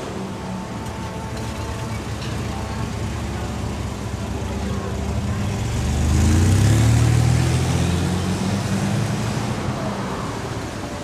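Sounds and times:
vehicle engine passing by: 4.9 - 10.5.

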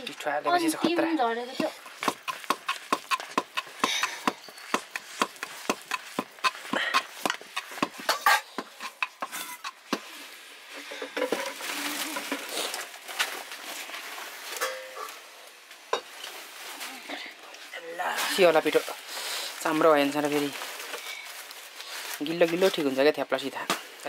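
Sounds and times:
stick scraping in metal pot: 1.7 - 10.1
soft rustling: 4.3 - 24.0.

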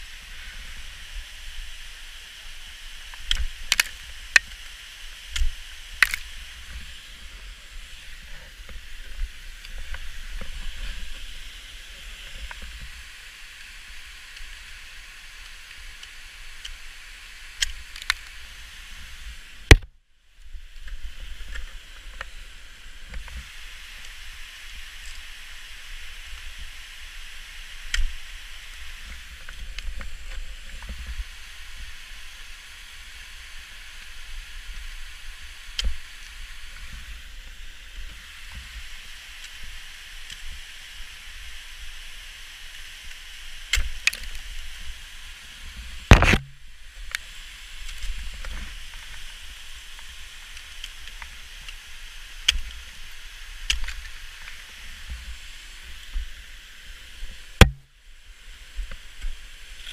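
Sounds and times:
hiss and low rumble: 0.0 - 59.9
ice axe striking ice: 46.1 - 46.6, 57.6 - 57.9.

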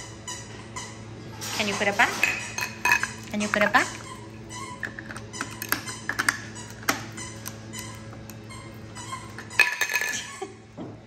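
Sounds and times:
small hard parts clicking: 4.8 - 8.4.

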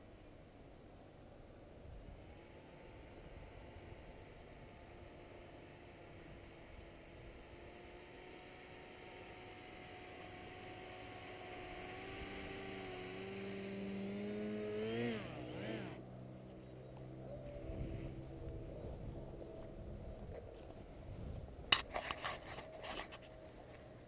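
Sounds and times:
paramotor engine: 0.0 - 24.0.

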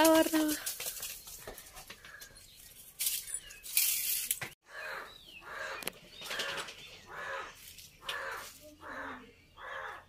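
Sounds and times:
birds calling: 0.1 - 10.0
descending bird chirp: 2.2 - 10.0.

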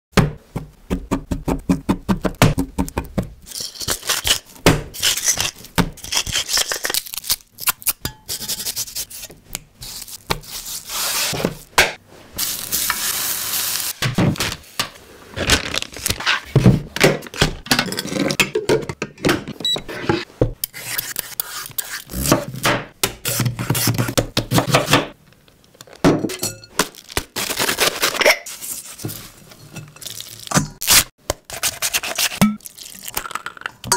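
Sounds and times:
rubbing and handling noises: 8.3 - 13.2
dishes and utensils clinking: 26.2 - 26.8.

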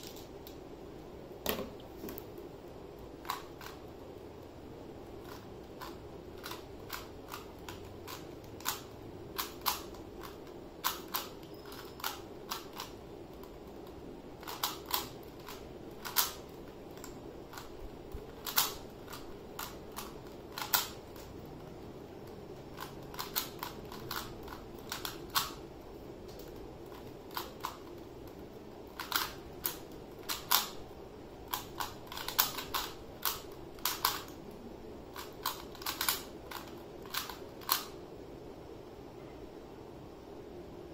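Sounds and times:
puzzle cube plastic clicking: 3.1 - 3.8, 5.2 - 21.7, 22.3 - 30.8, 31.5 - 38.0.

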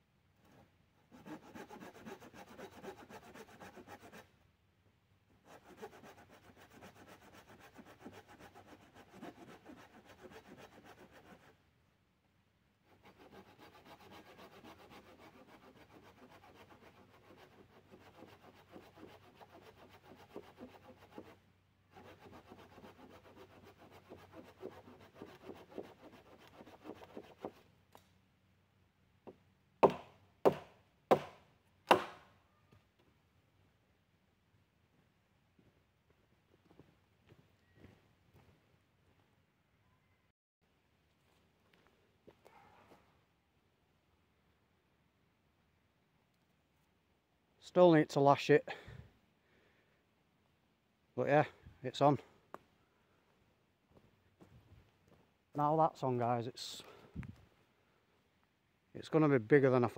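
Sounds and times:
hand saw cutting wood: 0.4 - 4.3, 5.4 - 11.6, 12.8 - 27.7, 29.8 - 32.2.

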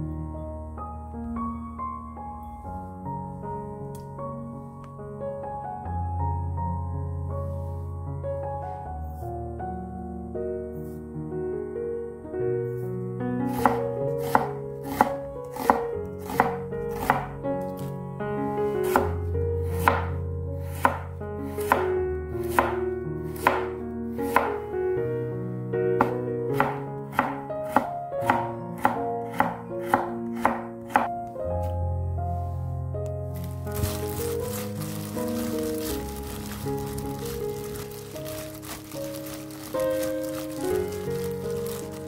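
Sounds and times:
soft background music: 0.0 - 42.0
knife chopping on wooden board: 13.5 - 17.3, 18.8 - 21.9, 22.5 - 22.8, 23.4 - 23.7, 26.0 - 31.1.

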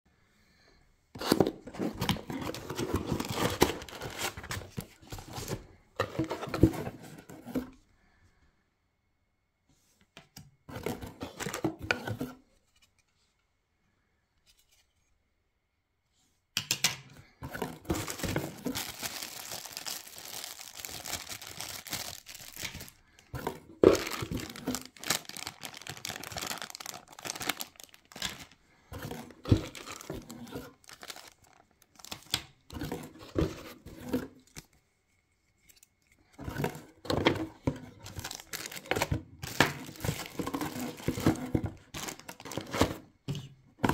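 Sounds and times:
packaging rustling and crinkling: 1.2 - 7.7, 17.5 - 34.8, 35.6 - 43.2.

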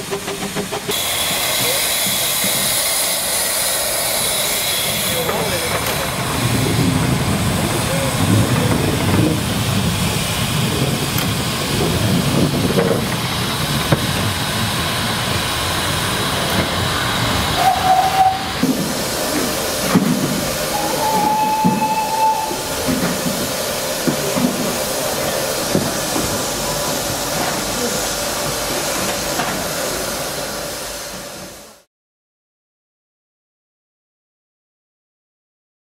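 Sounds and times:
steam locomotive hissing: 0.0 - 31.9
steam whistle blasts: 17.6 - 18.6, 20.7 - 22.8.

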